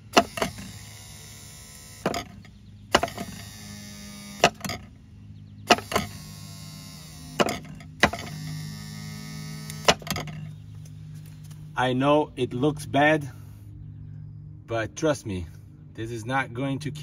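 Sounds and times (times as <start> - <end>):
electric motor humming: 0.0 - 11.6
sharp clicks: 5.7 - 6.2.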